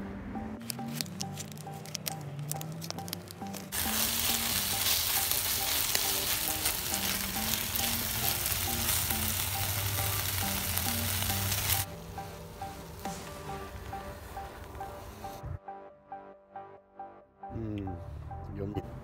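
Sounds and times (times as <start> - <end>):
rice sizzling in a skillet: 3.7 - 15.2.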